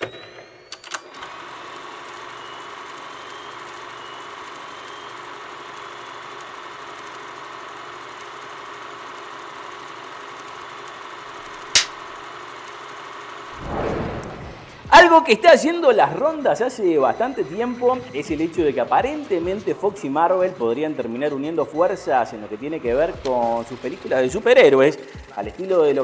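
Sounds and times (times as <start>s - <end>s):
film projector whirring and clattering: 0.0s - 13.6s, 16.0s - 26.0s
projector starting clicks: 11.5s - 12.8s
clapperboard snapping shut: 11.8s - 12.0s.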